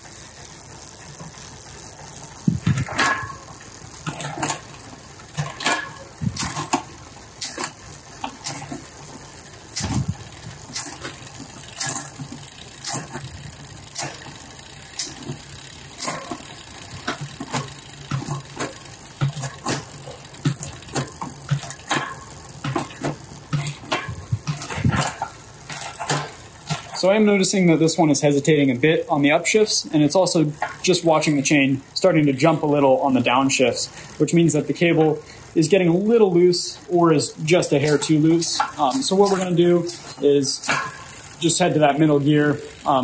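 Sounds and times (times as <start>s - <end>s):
bicycle chain running over cogs: 0.0s - 43.0s
derailleur shifting clicks: 0.1s - 27.1s, 38.0s - 43.0s.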